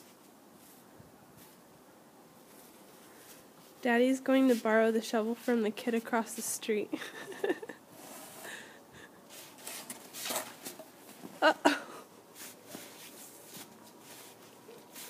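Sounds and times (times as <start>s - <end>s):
scuffing and rustling: 0.0s - 1.7s, 2.4s - 6.4s, 9.3s - 11.5s, 12.3s - 15.0s.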